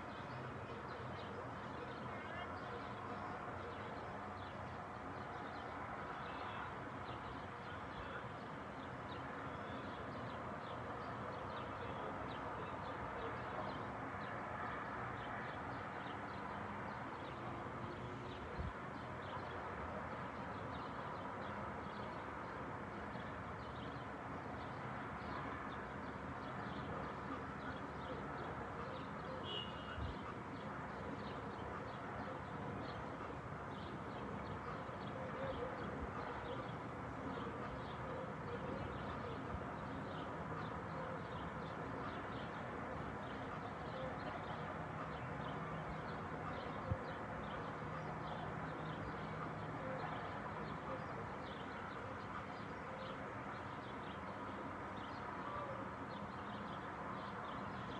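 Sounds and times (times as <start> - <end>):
steady distant hum: 0.1 - 57.9
small birds chirping: 15.1 - 49.6.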